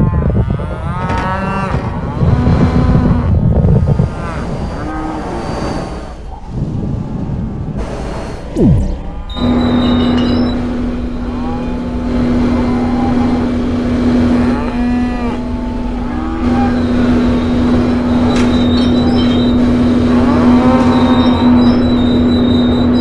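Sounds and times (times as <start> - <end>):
spaceship engine hum: 3.6 - 22.7
deep rumble: 6.0 - 20.7
monsters moaning calls: 11.1 - 21.8.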